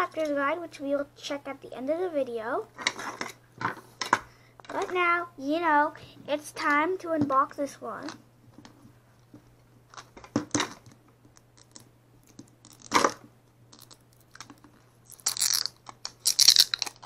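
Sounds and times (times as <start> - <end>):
sticker seal tearing: 12.6 - 13.2, 15.1 - 17.0.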